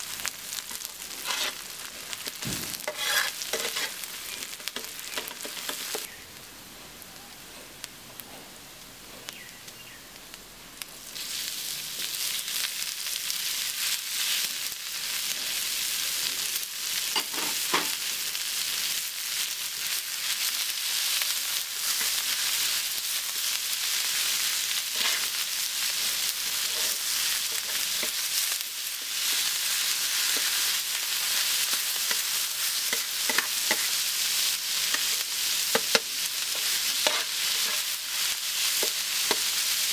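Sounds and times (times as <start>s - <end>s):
onions and meat sizzling: 0.0s - 39.9s
metal spatula scraping pan: 1.2s - 1.6s, 2.8s - 4.1s, 32.9s - 34.0s, 34.9s - 37.9s.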